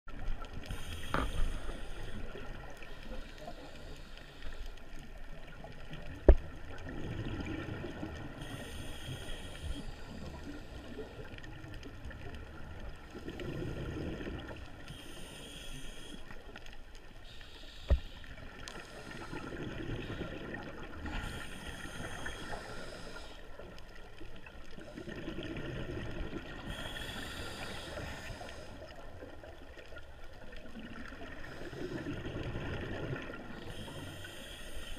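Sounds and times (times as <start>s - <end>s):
regulator inhale hiss: 0.6s - 5.1s, 8.3s - 11.4s, 14.6s - 20.4s, 21.0s - 23.7s, 26.6s - 29.1s, 31.4s - 32.2s, 33.5s - 34.9s
exhaled bubbles underwater: 5.2s - 15.0s, 18.3s - 34.6s.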